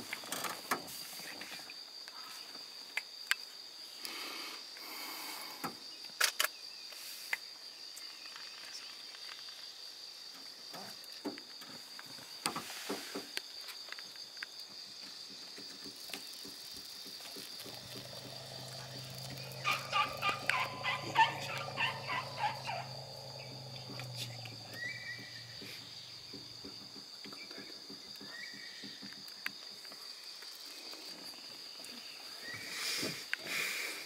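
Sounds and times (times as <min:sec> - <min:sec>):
high insect trill: 0:00.0 - 0:34.0
animal calling in quick notes: 0:17.8 - 0:25.9
low steady hum: 0:17.8 - 0:26.7.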